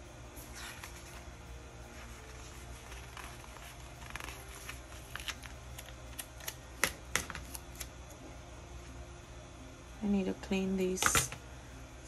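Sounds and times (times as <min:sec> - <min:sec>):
paper rustling: 0:01.9 - 0:06.6.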